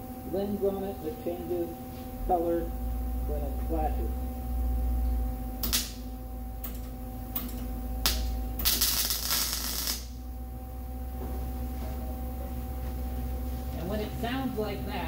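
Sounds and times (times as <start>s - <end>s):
welding arc sputtering: 0.4s - 10.4s.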